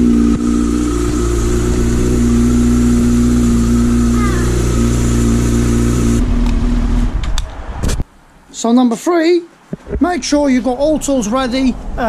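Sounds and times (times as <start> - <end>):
motorcycle engine idling: 0.0 - 7.0.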